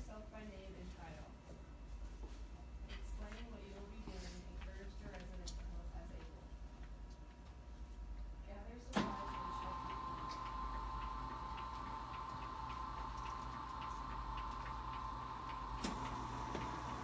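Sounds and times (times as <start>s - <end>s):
hospital bed motor whining: 8.9s - 17.0s.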